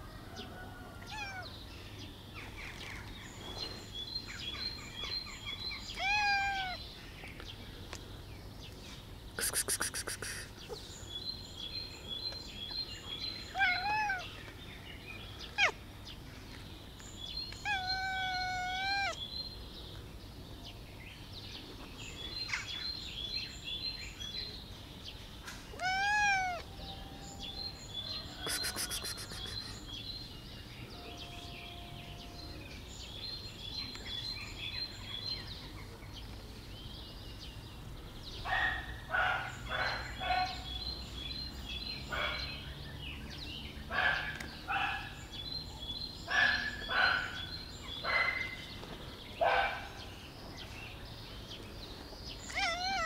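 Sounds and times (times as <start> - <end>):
small birds chirping: 0.0 - 53.0
cat meowing: 1.1 - 1.5, 5.9 - 6.8, 13.5 - 14.3, 17.6 - 19.2, 25.8 - 26.7, 52.5 - 53.0.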